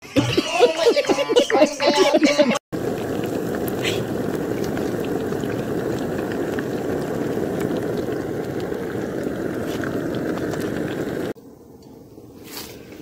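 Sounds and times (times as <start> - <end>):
hot oil sizzling: 2.7 - 13.0.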